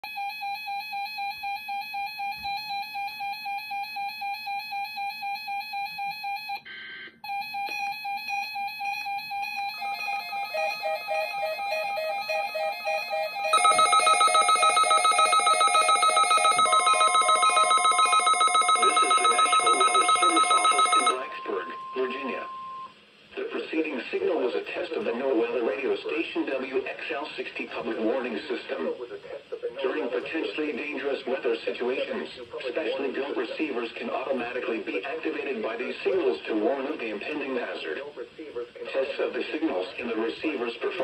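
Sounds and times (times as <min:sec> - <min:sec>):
weather radio alert beeps: 0:08.8 - 0:22.9.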